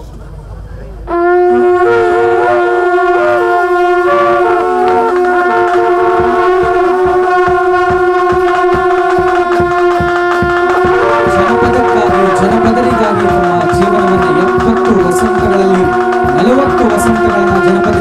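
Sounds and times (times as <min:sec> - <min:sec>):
drum beating steadily: 0:01.0 - 0:18.0
reedy pipe melody over drone: 0:01.1 - 0:18.0.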